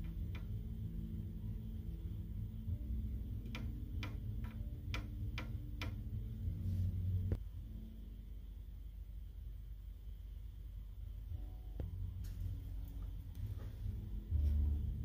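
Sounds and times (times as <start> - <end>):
low sustained background music: 0.0 - 15.0
clock-like ticking beat: 2.7 - 6.4.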